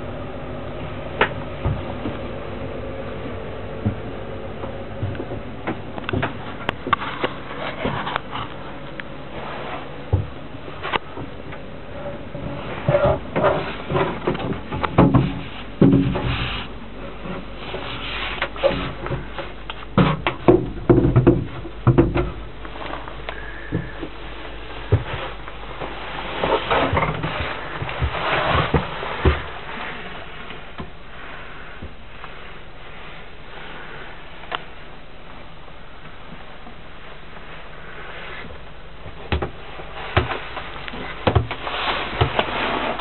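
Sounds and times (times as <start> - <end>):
knocks and bumps: 12.4 - 16.5, 17.2 - 24.2, 38.5 - 43.0.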